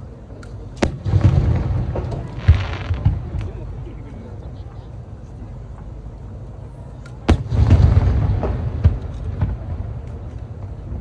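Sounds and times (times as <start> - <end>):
rolling rumble: 0.0 - 6.7, 7.3 - 11.0
firework shell booming: 0.8 - 3.6, 7.3 - 10.0
firework bangs: 0.8 - 3.7, 7.3 - 11.0.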